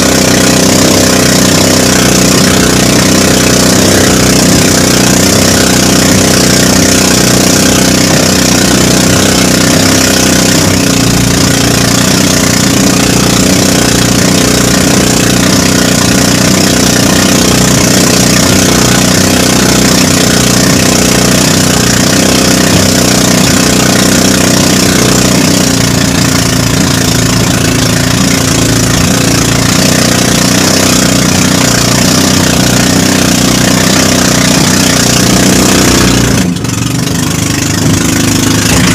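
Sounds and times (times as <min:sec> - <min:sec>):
boat engine running: 0:00.0 - 0:38.9.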